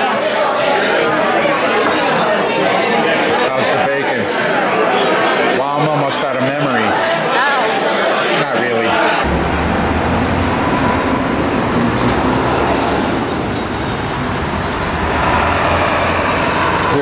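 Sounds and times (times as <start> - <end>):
road traffic rumble: 9.2 - 17.0.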